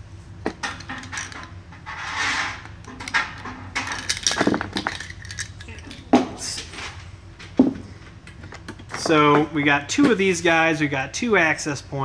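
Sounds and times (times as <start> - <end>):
cables rustling: 0.7 - 9.1.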